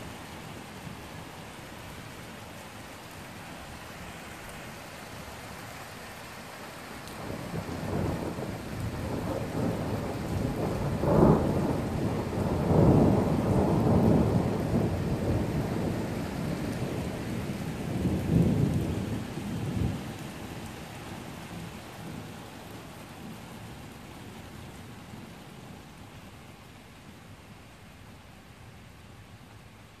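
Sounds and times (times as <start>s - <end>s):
steady rain: 0.0s - 30.0s
thunder rumbling: 7.2s - 20.3s.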